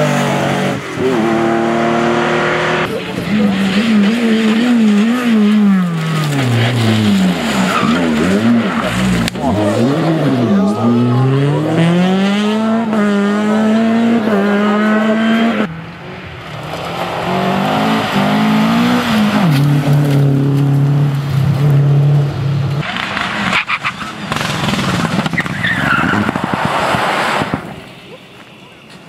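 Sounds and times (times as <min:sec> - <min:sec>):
car engine revving hard: 0:00.0 - 0:15.7, 0:17.0 - 0:22.3
tyre and road noise: 0:00.0 - 0:29.0
sharp cracks: 0:22.8 - 0:27.9.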